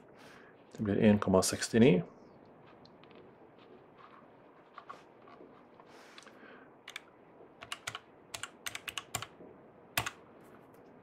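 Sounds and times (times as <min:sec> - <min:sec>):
calculator keys clicking: 0:07.6 - 0:09.3.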